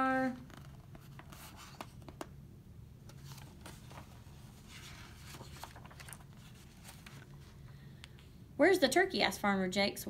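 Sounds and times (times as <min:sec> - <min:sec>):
faint low room hum: 0:00.0 - 0:10.0
paper rustling: 0:00.5 - 0:02.3, 0:03.1 - 0:07.8.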